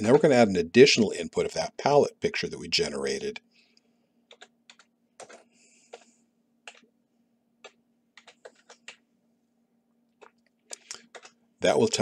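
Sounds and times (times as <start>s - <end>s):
faint low hum: 0.0s - 12.0s
keyboard typing: 4.3s - 7.0s, 7.6s - 9.1s, 10.2s - 11.4s.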